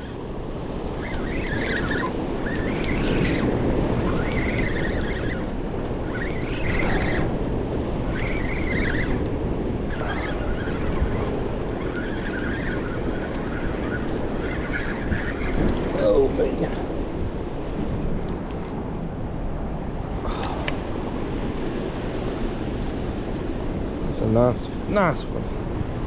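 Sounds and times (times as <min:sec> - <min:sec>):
wind buffeting microphone: 0:00.0 - 0:26.0
heavy water rushing: 0:10.9 - 0:26.0.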